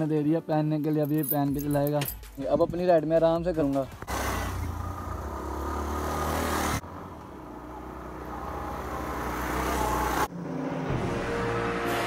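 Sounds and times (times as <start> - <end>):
motorcycle engine running: 3.9 - 10.0.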